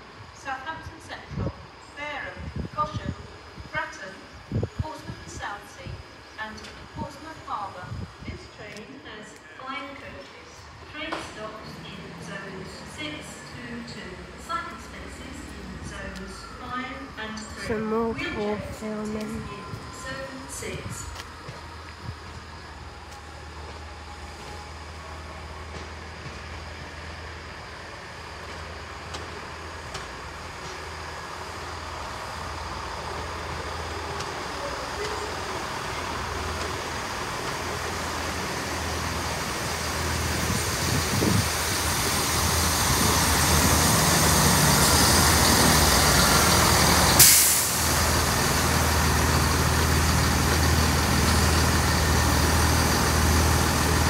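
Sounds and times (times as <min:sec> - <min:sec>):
train engine and wheels: 0:00.0 - 0:54.0
diesel engine idling: 0:30.3 - 0:54.0
air brakes hissing: 0:47.0 - 0:48.3.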